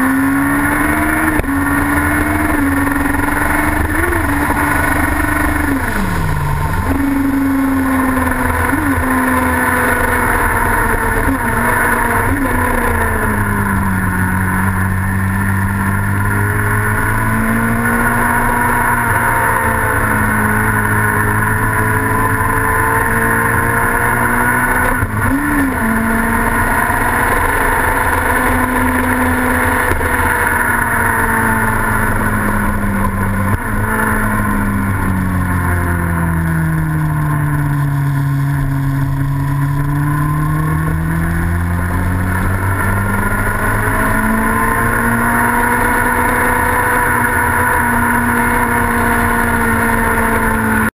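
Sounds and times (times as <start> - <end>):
racing engine running: 0.0 - 50.9.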